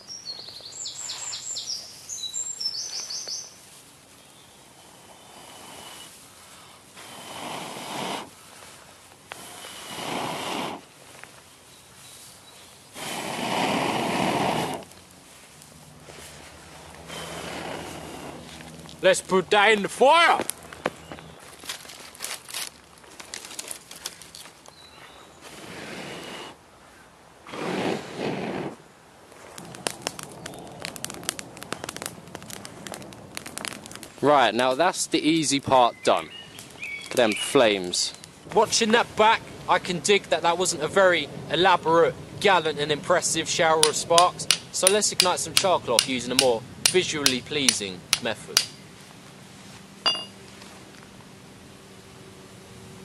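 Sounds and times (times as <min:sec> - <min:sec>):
fire crackling: 0:00.0 - 0:26.7, 0:27.3 - 0:51.8
breath blowing into tinder: 0:04.8 - 0:08.6, 0:09.3 - 0:10.9, 0:12.9 - 0:14.9, 0:17.0 - 0:18.6, 0:25.4 - 0:26.6, 0:27.4 - 0:28.8
sharp pops from fire: 0:27.5 - 0:34.2, 0:43.8 - 0:48.8.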